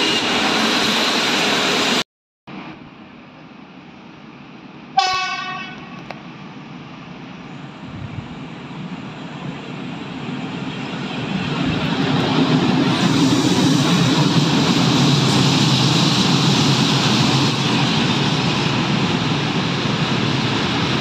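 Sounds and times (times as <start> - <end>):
train rumbling: 0.0 - 21.0
locomotive horn blast: 5.0 - 6.0.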